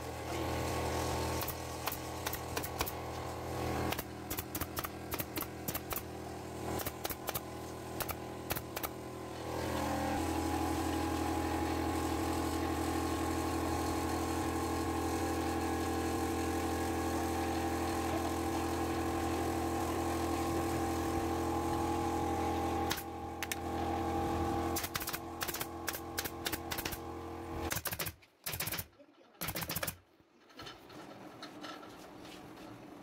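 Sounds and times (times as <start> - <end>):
motor hum: 0.0 - 27.9
pneumatic staple gun firing: 1.3 - 3.0, 3.9 - 6.1, 6.8 - 9.0, 22.8 - 23.7, 24.7 - 27.0, 27.6 - 30.0.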